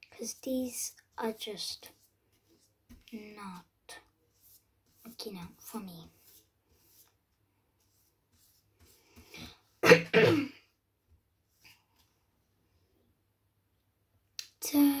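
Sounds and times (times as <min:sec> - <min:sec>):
girl coughing: 0:09.8 - 0:10.6.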